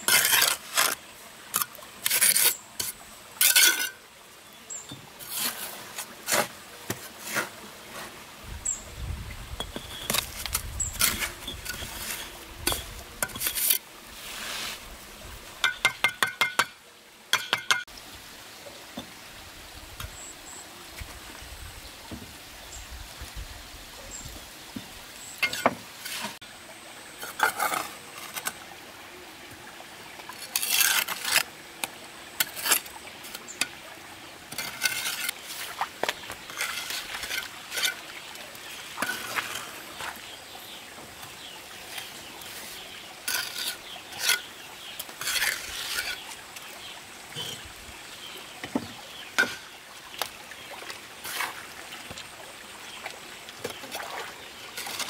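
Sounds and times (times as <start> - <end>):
trowel scraping mortar: 0.0 - 4.0, 5.2 - 8.2, 9.7 - 14.8, 30.4 - 31.5, 32.4 - 33.6, 34.5 - 38.1, 41.9 - 46.3, 54.8 - 55.0.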